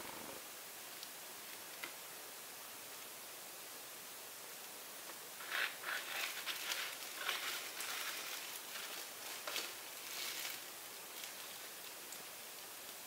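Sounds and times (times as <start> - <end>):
faint steady hiss: 0.0 - 13.0
plastic gloves crinkling: 5.4 - 13.0.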